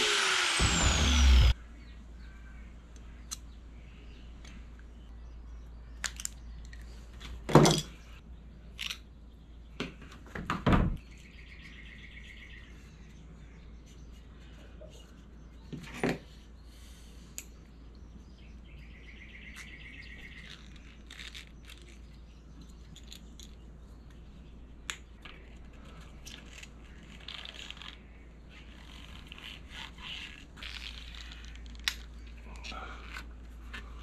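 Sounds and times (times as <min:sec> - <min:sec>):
steady low hum: 0:00.0 - 0:07.2.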